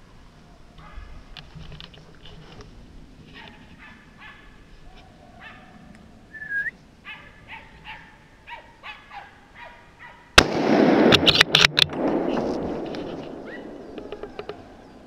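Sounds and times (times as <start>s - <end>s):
hunting dogs barking: 0.8s - 1.3s, 3.3s - 5.9s, 7.0s - 10.4s, 12.8s - 15.0s
short rising whistle: 6.3s - 6.8s
loud gunshot crack: 10.4s - 14.1s.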